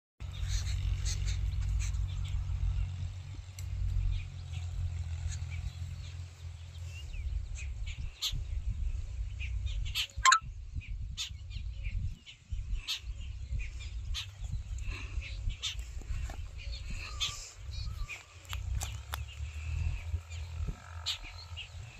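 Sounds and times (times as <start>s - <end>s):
wind rumble on microphone: 0.2s - 21.9s
bird chirps: 9.9s - 10.4s.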